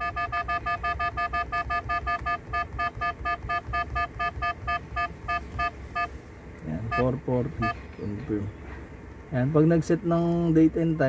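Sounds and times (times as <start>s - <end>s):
short electronic key beeps: 0.0s - 6.1s.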